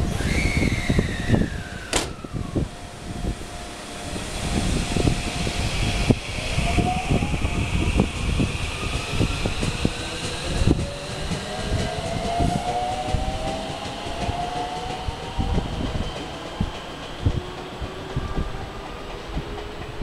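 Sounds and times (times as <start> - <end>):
train traction motors whining: 0.0 - 20.0
train wheels rumbling: 0.0 - 20.0.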